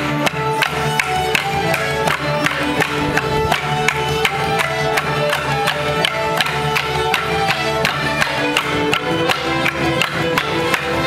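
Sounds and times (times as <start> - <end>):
fiddle: 0.0 - 11.0.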